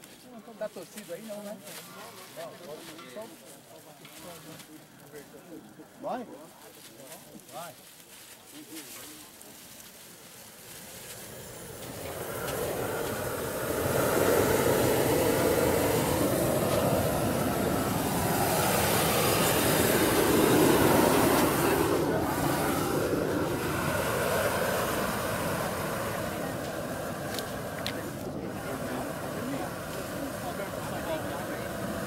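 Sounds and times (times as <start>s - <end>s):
burner flame roaring: 9.8s - 32.0s.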